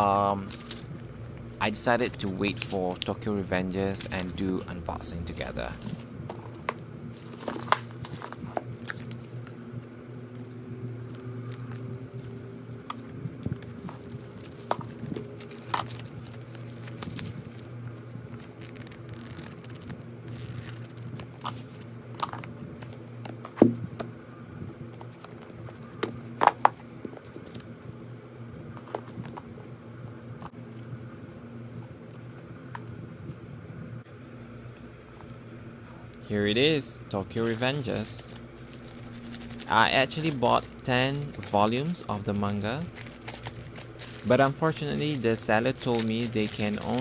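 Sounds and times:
plastic wrap crinkling: 0.0 - 21.9, 36.3 - 47.0
steady low hum: 0.0 - 47.0
pages flipping: 7.2 - 9.5, 12.8 - 23.7, 36.6 - 47.0.

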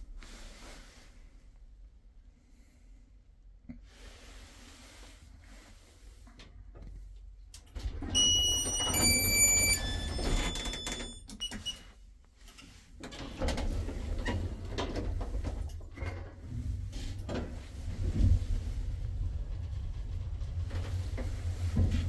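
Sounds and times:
lift car rumbling: 7.8 - 11.2, 13.2 - 22.0
lift doors opening: 7.8 - 11.8
electronic arrival chime: 8.2 - 11.2.

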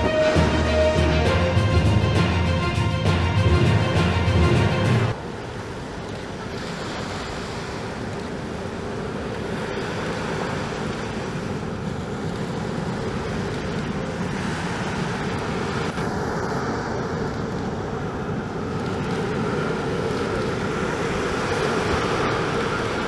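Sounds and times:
engine whine: 0.0 - 5.4, 11.6 - 23.0
jet engines rumbling: 0.0 - 23.0.

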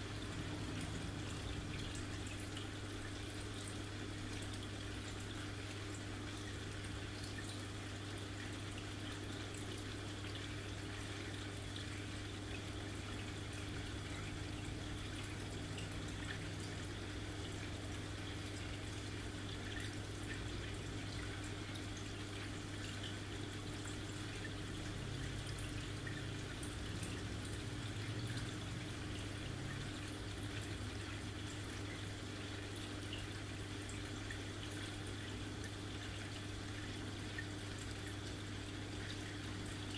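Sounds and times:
aquarium filter hum: 0.0 - 39.9
water trickling and dripping: 0.0 - 39.9.

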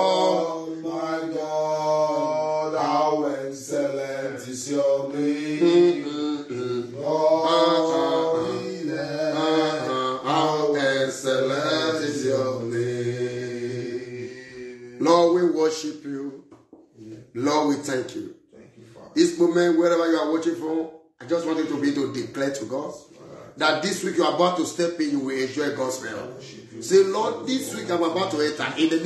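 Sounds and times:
man singing a slow chant: 0.0 - 15.6.

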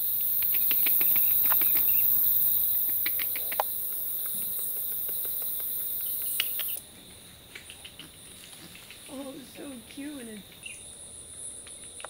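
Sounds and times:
insects chorus: 0.0 - 12.0
sharp ticks: 0.2 - 6.8.

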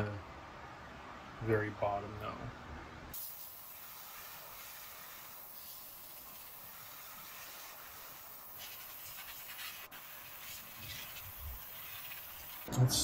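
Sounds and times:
airbrush hissing: 3.2 - 12.7.

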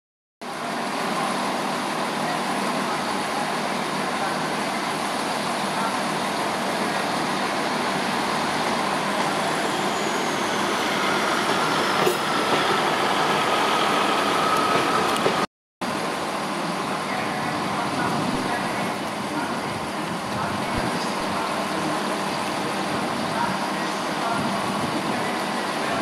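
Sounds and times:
diesel locomotive running: 0.4 - 26.0.

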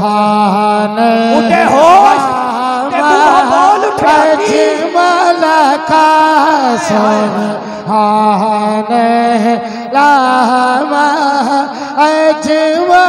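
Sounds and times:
man singing over loudspeaker: 0.0 - 13.0.

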